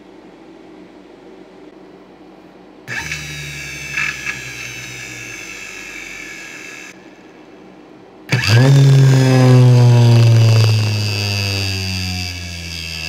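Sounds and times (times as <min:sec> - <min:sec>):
electric motor whine: 0:02.9 - 0:07.2, 0:08.3 - 0:13.0.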